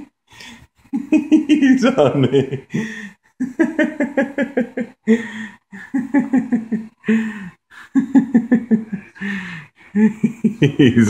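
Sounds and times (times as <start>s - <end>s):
man laughing: 1.0s - 4.9s, 10.0s - 11.0s.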